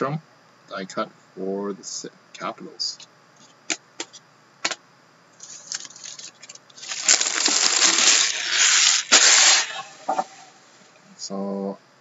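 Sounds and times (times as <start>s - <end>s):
wrappers crinkling and rustling: 5.4s - 8.3s.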